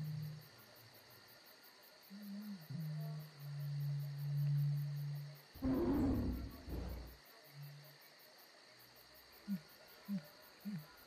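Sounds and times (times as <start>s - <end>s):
low rumbling burst: 5.6s - 7.2s
short sliding low notes: 5.6s - 7.2s.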